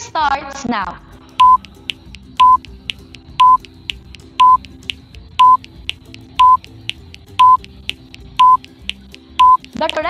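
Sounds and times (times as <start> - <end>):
short electronic beeps: 1.4 - 1.6, 2.4 - 2.6, 3.4 - 3.6, 4.4 - 4.6, 5.4 - 5.6, 6.4 - 6.6, 7.4 - 7.6, 8.4 - 8.6, 9.4 - 9.6.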